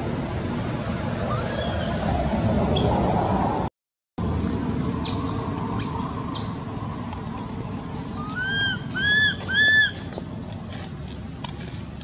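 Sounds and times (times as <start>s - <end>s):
whistling animal cries: 1.3s - 2.0s, 8.2s - 10.0s.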